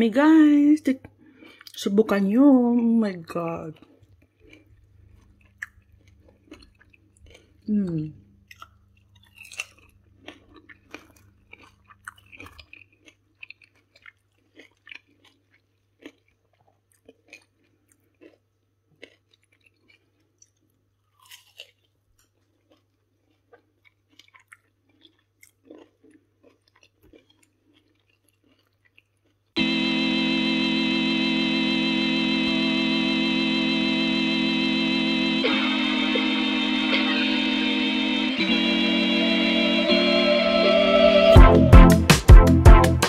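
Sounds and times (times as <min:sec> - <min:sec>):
crunchy chewing: 0:03.7 - 0:07.7, 0:08.4 - 0:29.6
loud music: 0:29.6 - 0:43.0.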